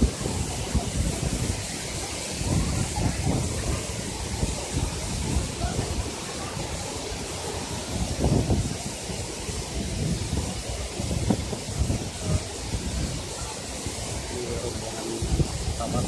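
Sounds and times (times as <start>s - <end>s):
waterfall rushing into a pool: 0.0s - 16.0s
wind buffeting microphone: 0.0s - 16.0s.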